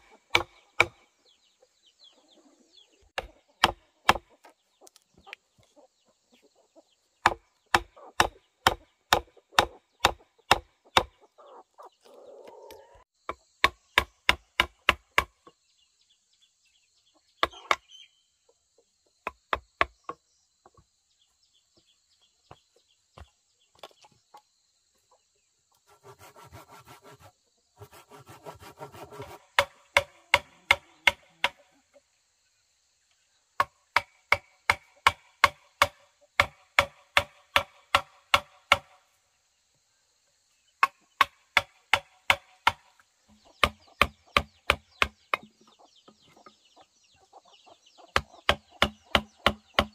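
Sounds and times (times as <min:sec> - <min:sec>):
chopping strikes on wood: 0:00.3 - 0:01.0, 0:03.2 - 0:04.4, 0:07.2 - 0:11.2, 0:13.3 - 0:15.5, 0:29.2 - 0:31.6, 0:33.6 - 0:39.0, 0:40.8 - 0:45.5, 0:48.1 - 0:49.9.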